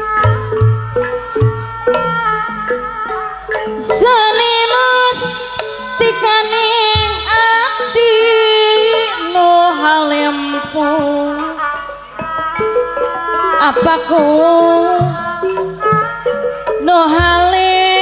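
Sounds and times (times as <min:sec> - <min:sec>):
drum strokes: 0:00.0 - 0:18.0
gamelan music: 0:00.0 - 0:18.0.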